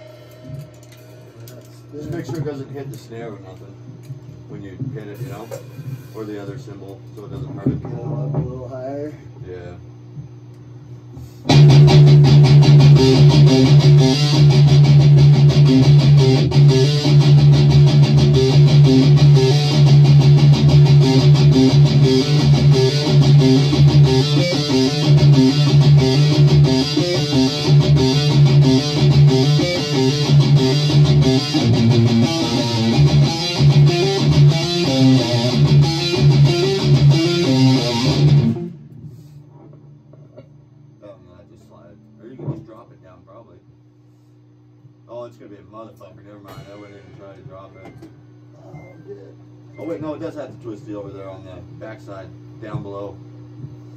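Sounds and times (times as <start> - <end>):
loud electric guitar: 11.5 - 38.8.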